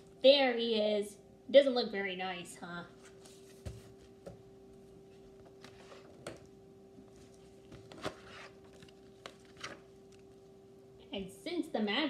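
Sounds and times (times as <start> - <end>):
faint steady hum: 0.0 - 12.0
paper rustling: 7.1 - 10.2.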